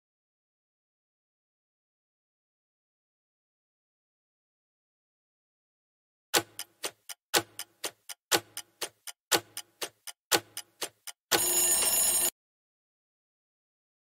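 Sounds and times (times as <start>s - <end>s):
clock ticking: 6.4s - 12.3s
time's-up tone: 8.3s - 12.3s.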